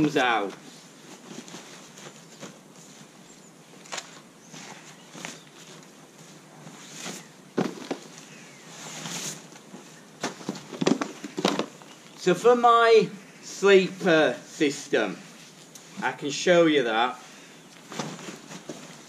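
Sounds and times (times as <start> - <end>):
rucksack and gear rustling: 0.0 - 12.2, 17.7 - 19.0.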